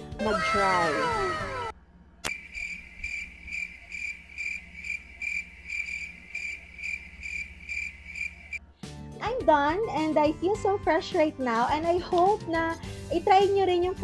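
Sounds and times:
crickets chirping: 2.3s - 8.6s.

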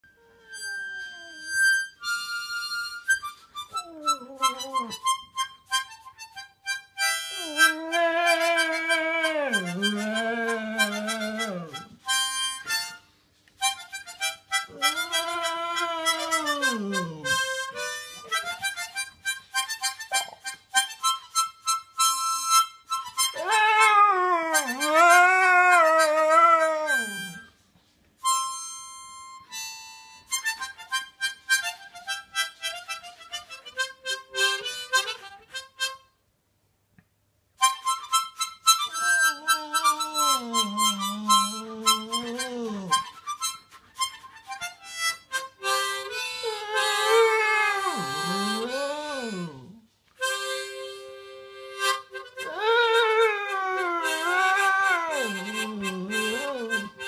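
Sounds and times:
harmonica playing: 0.0s - 27.6s, 28.2s - 36.1s, 37.6s - 57.0s
dog howling: 3.8s - 5.0s, 7.4s - 11.9s, 14.7s - 17.6s, 23.3s - 27.4s, 38.9s - 43.1s, 46.4s - 49.8s, 52.4s - 57.0s.

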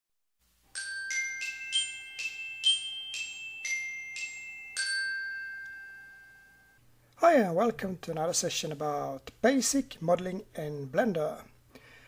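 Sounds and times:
bell-like jingle notes: 0.7s - 6.8s.

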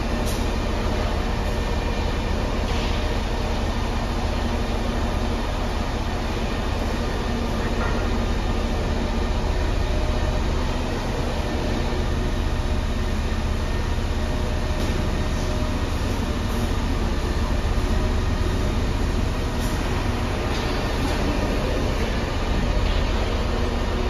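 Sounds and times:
truck engine deep rumble: 0.0s - 24.0s.

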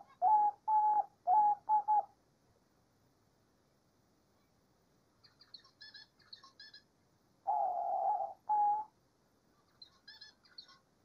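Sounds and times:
dove cooing: 0.0s - 2.1s, 7.5s - 8.9s.

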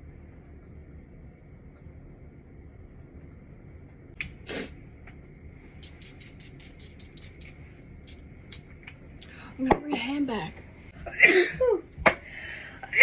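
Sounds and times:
short hissing puff: 4.4s - 4.8s.

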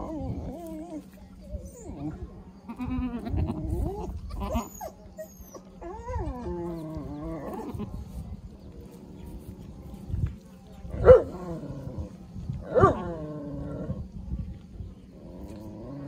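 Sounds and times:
goats bleating: 2.7s - 3.6s.

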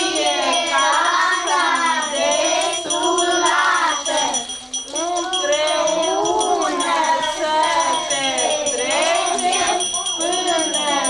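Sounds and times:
children singing: 0.0s - 11.0s
small bells jingling: 0.0s - 11.0s.

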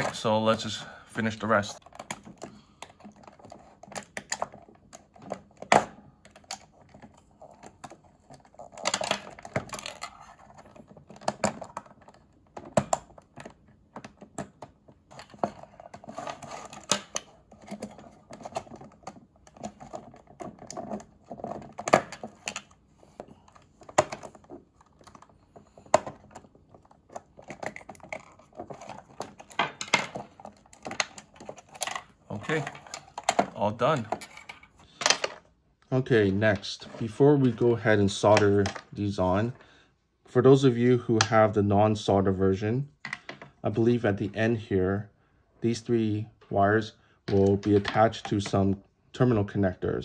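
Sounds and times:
plastic scraping: 1.5s - 35.6s.

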